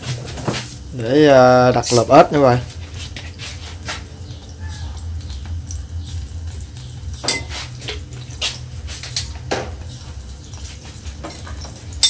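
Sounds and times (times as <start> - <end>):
steady low hum: 0.0 - 12.0
pan and metal utensils clanking: 1.7 - 12.0.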